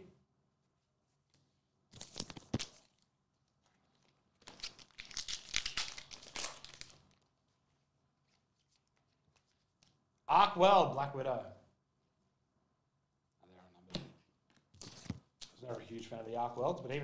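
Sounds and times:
plastic wrapper crinkling and tearing: 0:01.9 - 0:07.4, 0:08.2 - 0:10.0.

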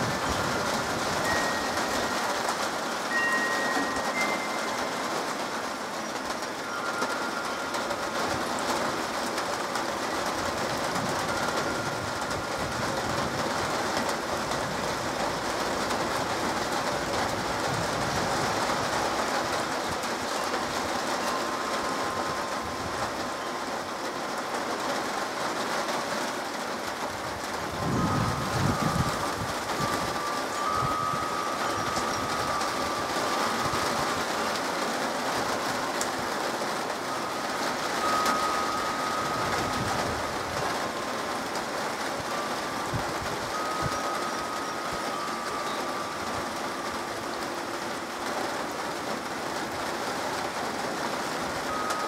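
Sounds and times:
wind gust buffeting microphone: 0:00.0 - 0:02.6, 0:10.0 - 0:23.8, 0:27.0 - 0:34.8, 0:37.2 - 0:47.4
rain pattering on pavement: 0:00.0 - 0:52.0.

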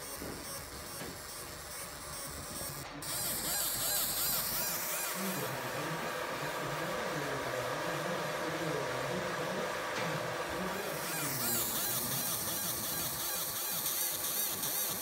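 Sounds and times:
laser scan head warbling buzz: 0:00.0 - 0:06.0, 0:10.6 - 0:15.0.

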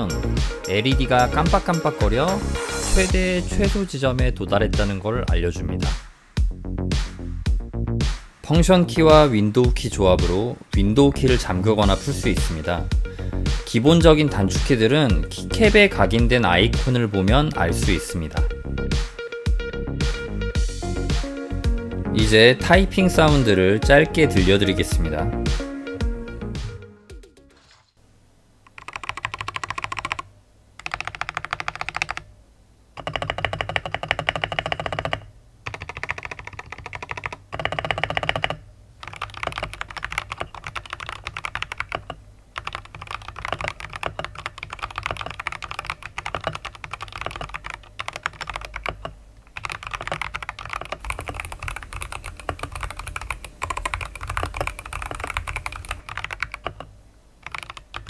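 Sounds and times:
typing on a mechanical keyboard: 0:28.7 - 0:32.3, 0:33.0 - 0:58.0.

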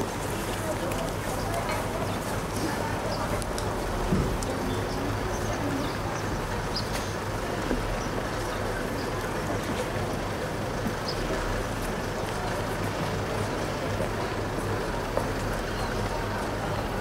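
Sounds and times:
constant rushing noise: 0:00.0 - 0:17.0.

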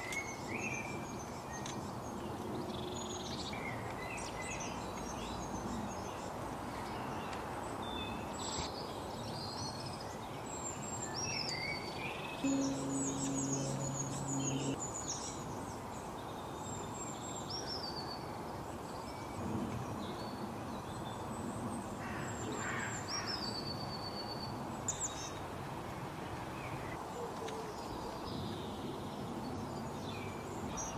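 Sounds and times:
songbirds chirping: 0:00.0 - 0:21.3
steady outdoor hiss: 0:00.0 - 0:30.9
brief sharp sound: 0:12.4 - 0:14.8.

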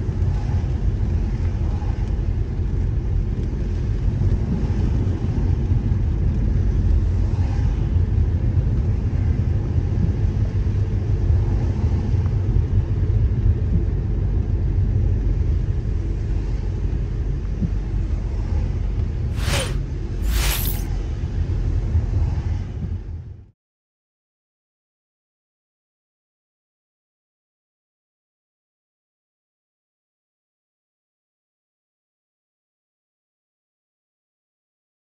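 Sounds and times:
car road and engine rumble: 0:00.0 - 0:20.4.

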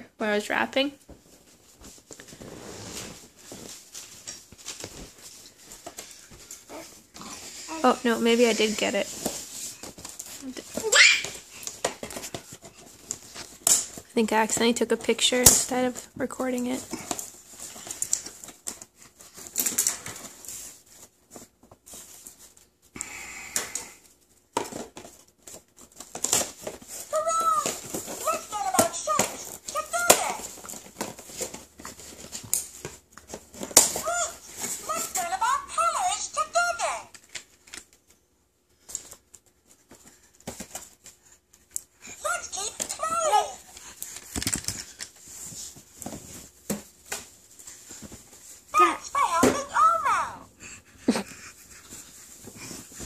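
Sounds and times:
cardboard and plastic box crinkling: 0:24.6 - 0:35.2
hands tapping plush toy packaging: 0:26.1 - 0:31.6.

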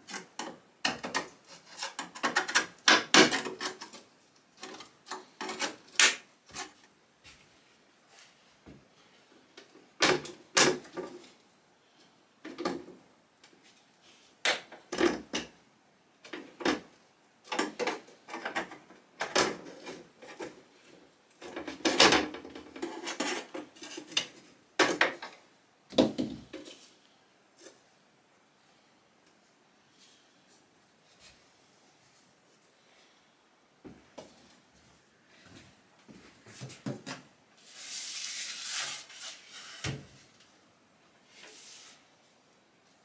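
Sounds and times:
wooden knocks and clunks: 0:24.8 - 0:26.6.

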